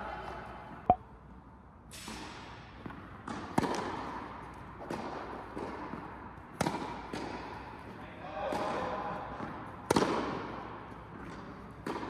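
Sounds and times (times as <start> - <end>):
rackets striking tennis balls: 1.9 - 12.0
tennis balls bouncing: 2.8 - 7.5, 9.4 - 12.0.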